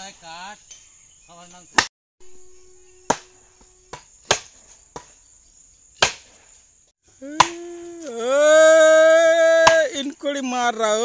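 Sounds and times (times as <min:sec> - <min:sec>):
wooden mallet pounding post: 0:03.1 - 0:05.1.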